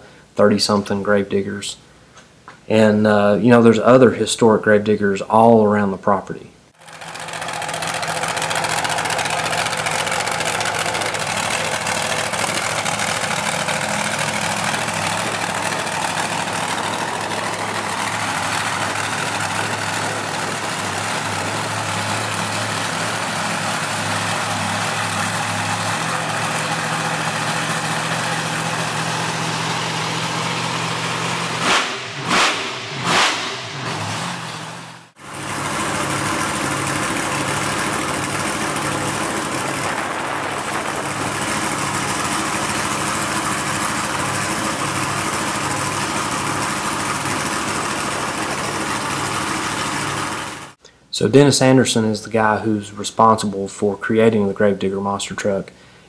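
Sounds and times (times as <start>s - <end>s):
buggy engine running: 6.8s - 50.8s
engine revving bursts: 6.8s - 50.8s.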